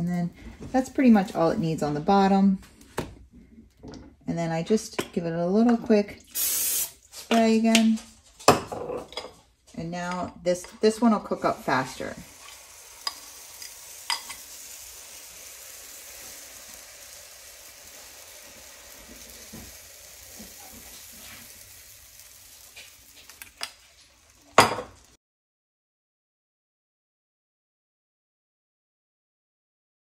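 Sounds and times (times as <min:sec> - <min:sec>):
batter sizzling in a pan: 0:06.3 - 0:07.2, 0:10.6 - 0:25.2.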